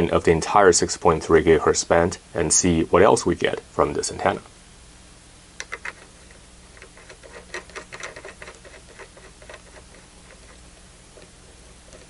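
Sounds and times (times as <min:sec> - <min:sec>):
connector being screwed clicking: 0:05.6 - 0:06.1.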